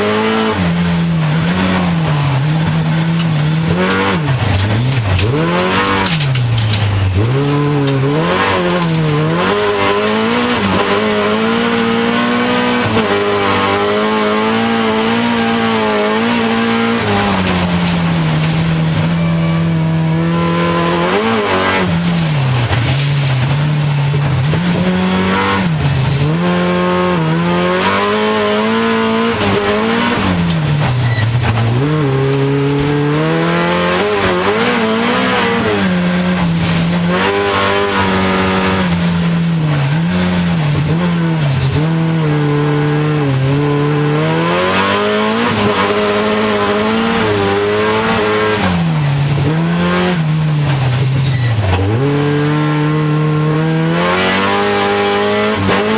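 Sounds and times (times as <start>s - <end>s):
race car engine revving hard: 0.0s - 55.9s.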